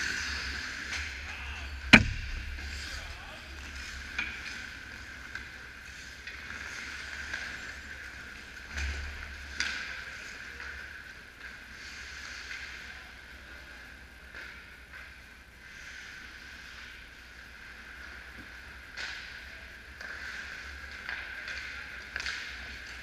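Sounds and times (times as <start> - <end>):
skates scraping ice: 0.0 - 1.8, 2.5 - 10.8, 15.6 - 23.0
steady low hum: 0.0 - 23.0.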